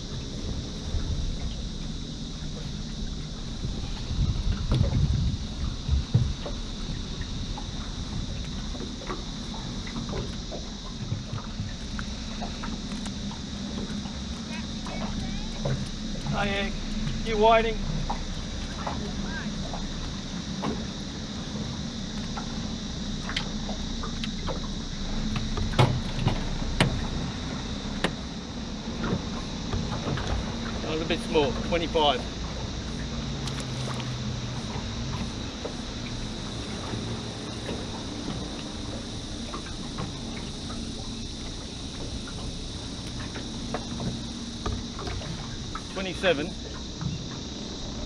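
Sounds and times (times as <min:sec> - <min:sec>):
high-pitched insect drone: 0:00.0 - 0:48.0
knocks in aluminium boat: 0:00.0 - 0:48.0
water: 0:00.0 - 0:48.0
wind: 0:00.0 - 0:48.0
gear clicking in metal boat: 0:33.0 - 0:48.0.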